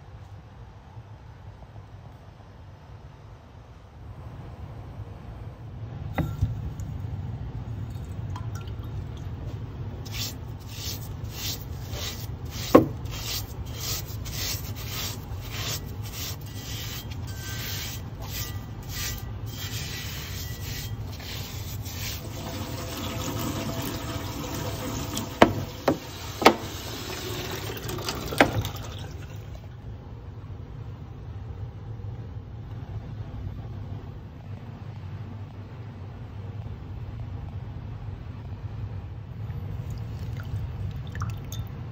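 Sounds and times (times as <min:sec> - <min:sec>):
steady low hum: 0:00.0 - 0:26.5, 0:28.2 - 0:41.9
scrubbing wet metal: 0:07.7 - 0:29.5.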